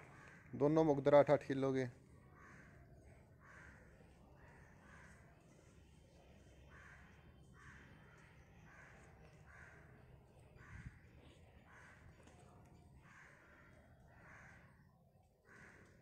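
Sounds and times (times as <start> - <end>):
crows cawing: 0.0 - 0.6, 2.1 - 5.4, 6.6 - 10.0, 10.6 - 16.0.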